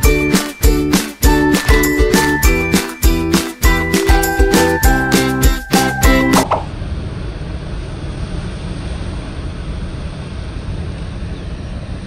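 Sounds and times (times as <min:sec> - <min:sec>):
music jingle: 0:00.0 - 0:06.5.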